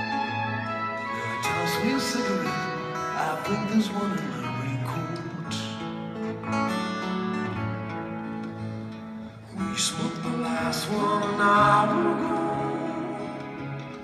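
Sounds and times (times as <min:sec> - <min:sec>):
live band music: 0:00.0 - 0:14.0
strummed acoustic guitar: 0:00.0 - 0:14.0
man singing: 0:01.1 - 0:05.9, 0:09.5 - 0:13.8.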